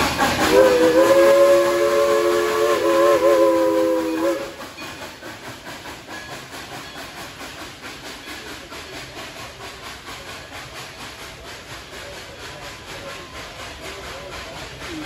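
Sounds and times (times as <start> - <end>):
rhythmic rolling of train cars: 0.0 - 15.0
steady hiss of steam: 0.0 - 15.0
steam locomotive whistle: 0.4 - 5.0.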